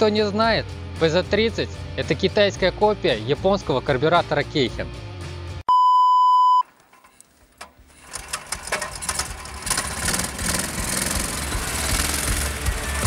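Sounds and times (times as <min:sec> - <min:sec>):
electronic beep: 0:05.7 - 0:06.7
small engine running: 0:07.8 - 0:13.0.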